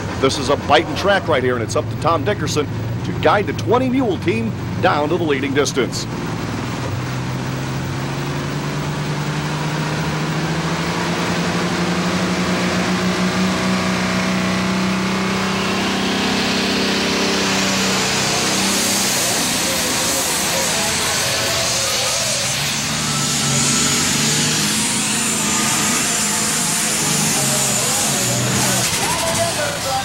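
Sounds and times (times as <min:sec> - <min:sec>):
tractor engine revving: 0:00.0 - 0:30.0
turbocharger hiss: 0:16.7 - 0:30.0.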